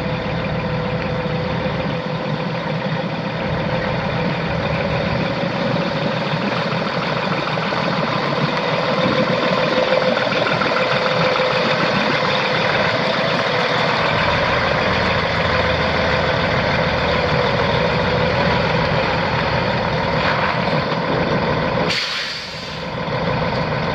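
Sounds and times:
truck diesel engine idling: 0:00.0 - 0:23.9.

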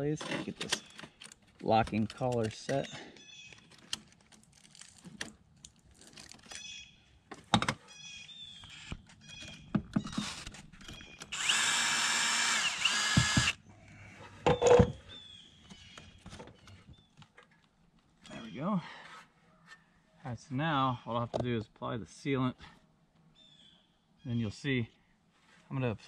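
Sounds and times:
cordless drill running: 0:11.3 - 0:13.6.

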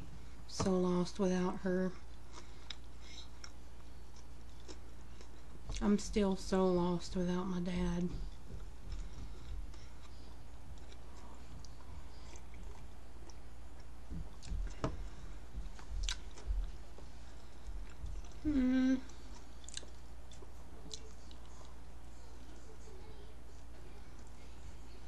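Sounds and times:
close chewing: 0:08.2 - 0:14.8, 0:19.1 - 0:21.8
person humming: 0:18.4 - 0:19.2.

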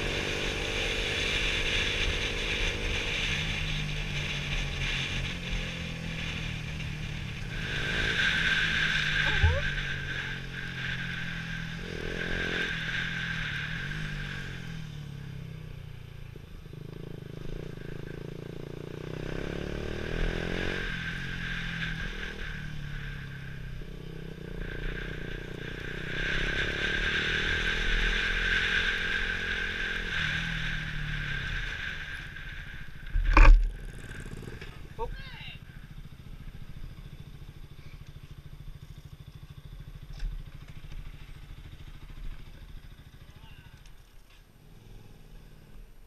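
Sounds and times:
motorcycle engine running: 0:00.0 - 0:46.0
wind noise on microphone: 0:08.6 - 0:10.1.

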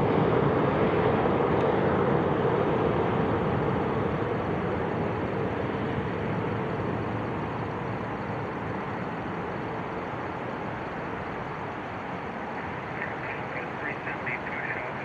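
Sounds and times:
jet engine rush: 0:00.0 - 0:15.0.

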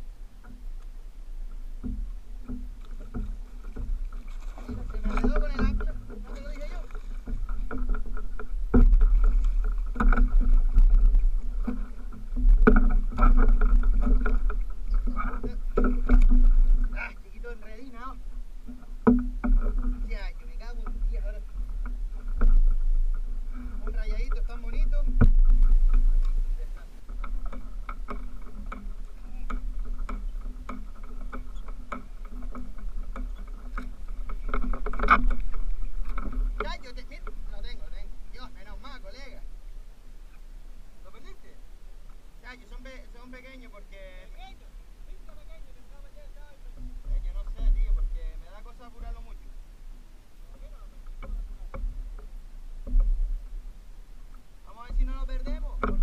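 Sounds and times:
water sloshing: 0:00.0 - 0:56.0
wind rumble on microphone: 0:00.0 - 0:56.0
knocks against plastic kayak: 0:18.7 - 0:20.0.

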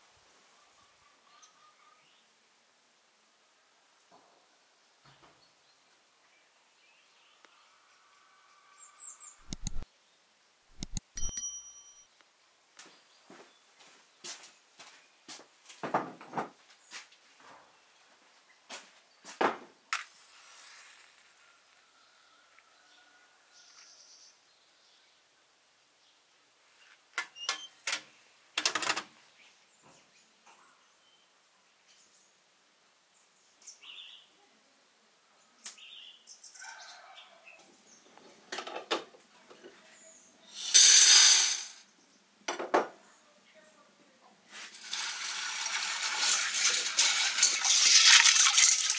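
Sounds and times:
faint bird chirps: 0:00.5 - 0:02.3
water splashing into pot: 0:44.7 - 0:48.9.

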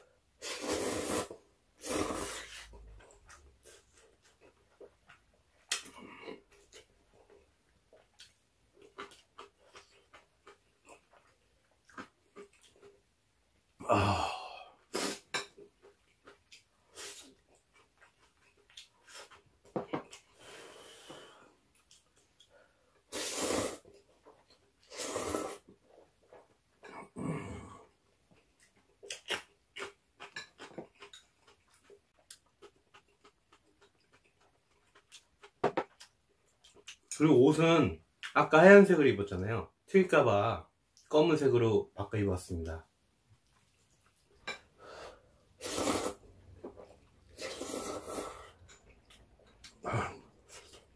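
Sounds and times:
person chewing: 0:00.4 - 0:13.1, 0:14.1 - 0:27.0, 0:27.8 - 0:37.2, 0:43.4 - 0:50.9.

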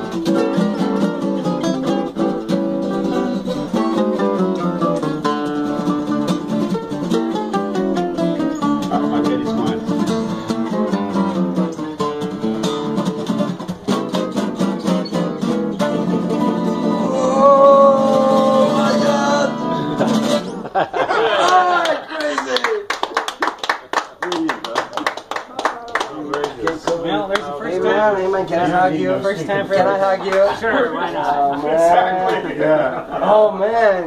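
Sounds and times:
fretless guitar jazz tune: 0:00.0 - 0:20.7.

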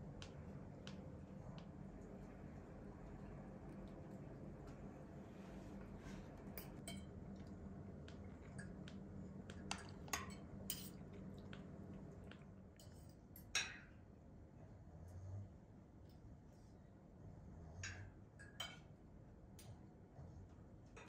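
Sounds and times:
steady low hum: 0:00.0 - 0:21.0
cutlery clinking on plates: 0:06.5 - 0:07.1, 0:09.7 - 0:11.0.

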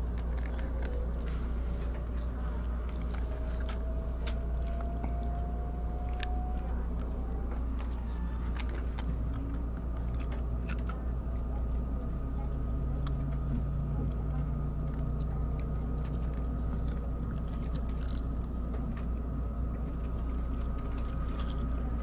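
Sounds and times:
low rumble: 0:00.0 - 0:22.0
faint rising whine: 0:00.6 - 0:09.3.

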